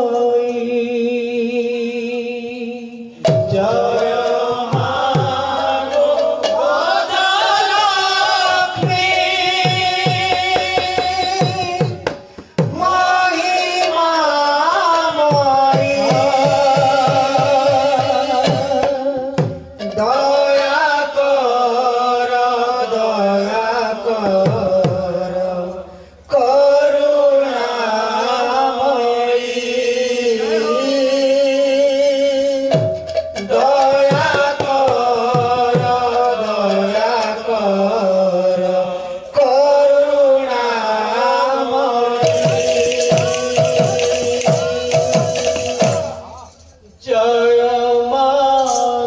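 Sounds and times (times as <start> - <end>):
men singing devotional song: 0.0 - 49.0
hand drum: 3.2 - 7.0, 8.8 - 13.0, 15.3 - 20.2, 32.7 - 36.9, 42.2 - 46.5.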